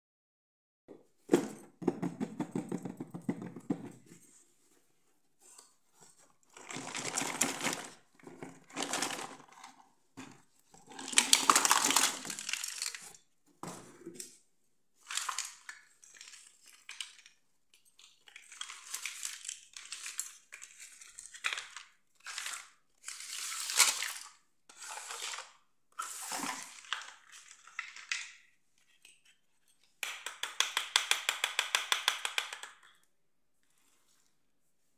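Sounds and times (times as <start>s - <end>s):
plastic toys rustling and clattering: 2.4s - 30.0s.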